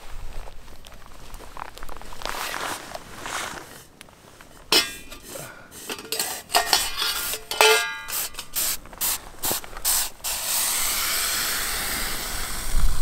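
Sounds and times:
hiss of steam and boiling water: 4.5s - 13.0s
metal pot lid clanking and scraping: 4.7s - 8.8s.

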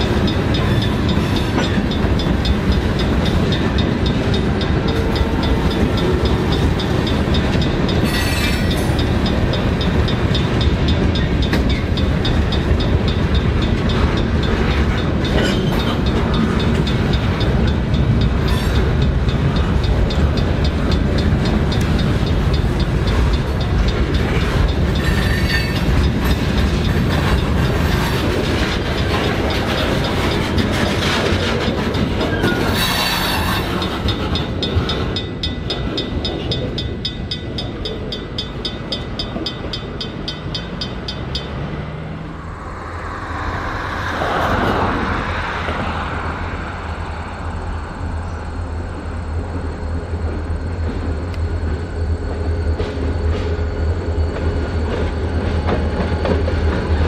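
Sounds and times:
crossing bell ringing: 0.0s - 44.3s
train wheels clacking on rails: 0.0s - 47.6s, 48.2s - 57.0s.

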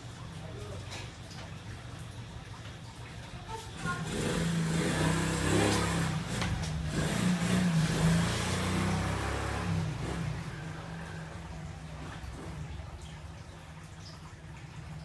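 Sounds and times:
vehicle engine passing by: 3.8s - 13.3s.

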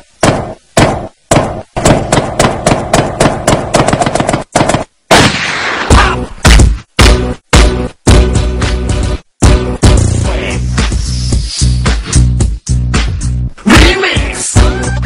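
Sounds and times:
gunfire sound effects: 0.2s - 7.1s
noisy blast: 5.1s - 7.2s.

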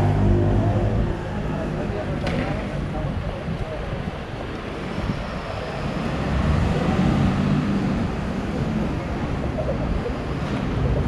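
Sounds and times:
road traffic rumble: 0.0s - 11.0s
vehicle passing: 5.5s - 11.0s.

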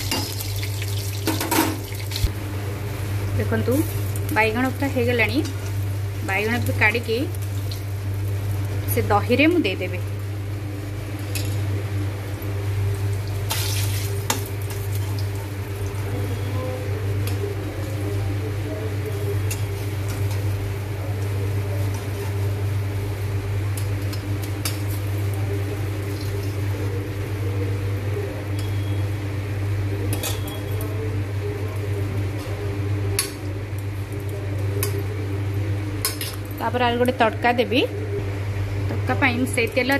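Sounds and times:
oil sizzling: 0.0s - 11.0s, 12.2s - 27.8s.

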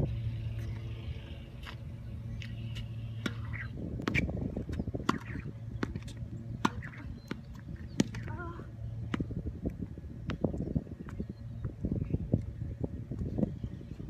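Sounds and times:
low hum: 0.0s - 14.0s
tennis ball hits and bounces: 3.2s - 4.3s, 5.0s - 8.3s.

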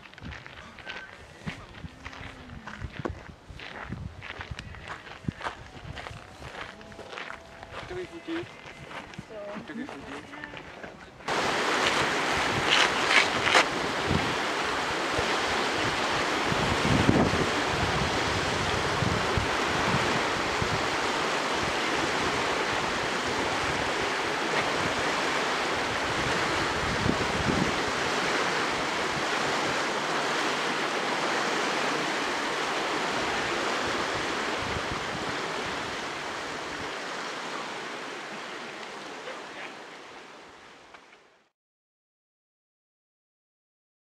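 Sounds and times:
wind buffeting microphone: 0.0s - 37.5s
river water rushing: 11.2s - 41.2s.

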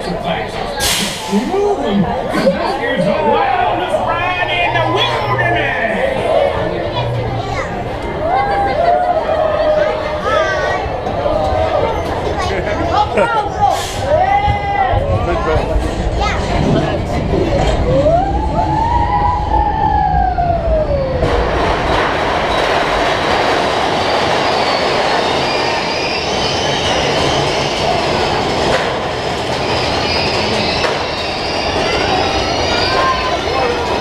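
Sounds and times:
roller coaster train rumbling: 0.0s - 34.0s
faint high wheel squeals: 24.0s - 28.0s, 29.6s - 34.0s.

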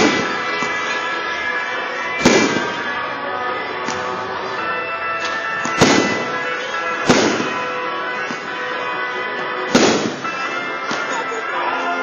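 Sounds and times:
fireworks bangs: 0.0s - 1.1s, 2.1s - 3.0s, 5.1s - 8.9s, 9.5s - 11.4s
music playing: 0.0s - 12.0s.

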